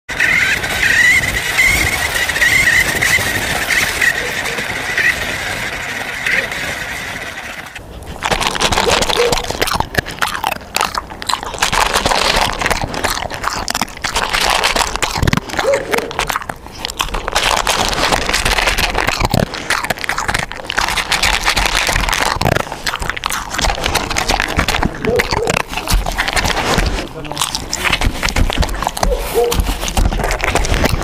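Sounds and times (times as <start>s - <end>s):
toy car electric motor whining: 0.1s - 7.8s
dog crunching dry kibble: 0.1s - 31.0s.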